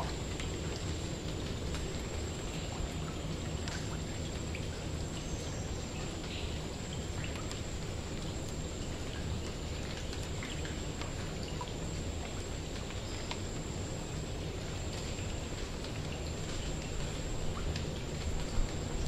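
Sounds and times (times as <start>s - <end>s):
steady rain patter: 0.0s - 19.0s
raindrops ticking: 14.4s - 19.0s.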